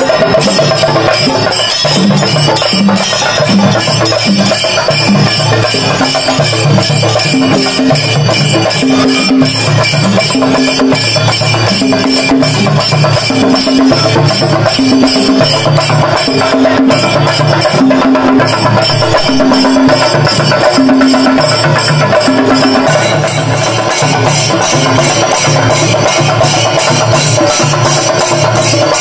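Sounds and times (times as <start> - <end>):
cymbals ringing: 0.0 - 29.0
drums beating fast: 0.0 - 29.0.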